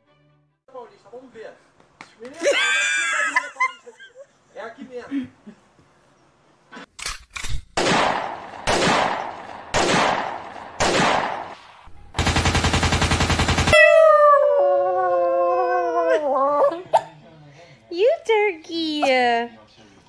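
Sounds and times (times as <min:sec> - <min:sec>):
cat yowling: 0:13.7 - 0:16.8.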